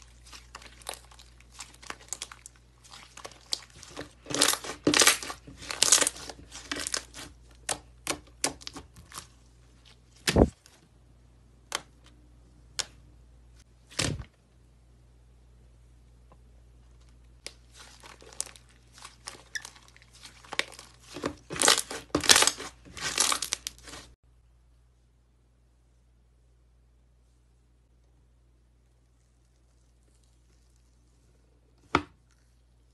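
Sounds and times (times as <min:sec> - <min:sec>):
slime crackling and popping: 0:00.0 - 0:09.3, 0:17.4 - 0:24.2.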